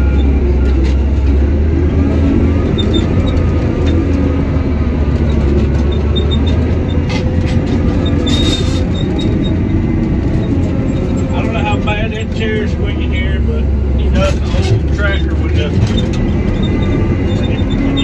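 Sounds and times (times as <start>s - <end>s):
dozer diesel engine drone: 0.0s - 18.0s
steel tracks squeaking and clanking: 0.0s - 18.0s.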